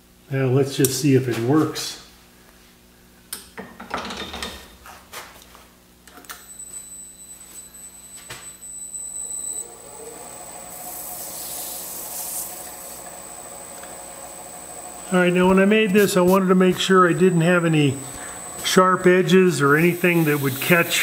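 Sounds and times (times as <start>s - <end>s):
lathe motor whining: 8.7s - 21.0s.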